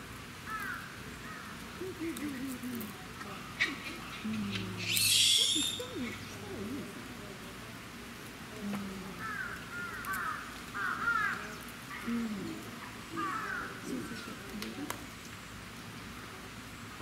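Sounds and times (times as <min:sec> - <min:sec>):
harsh animal calls: 0:03.4 - 0:06.3
lower short animal calls: 0:03.6 - 0:06.3.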